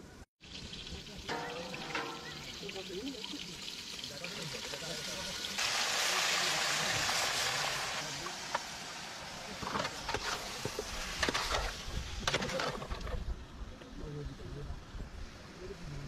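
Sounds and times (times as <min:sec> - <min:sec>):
meat sizzling in hot oil: 0:00.4 - 0:12.3
metal ladle scraping a pot: 0:01.3 - 0:02.6.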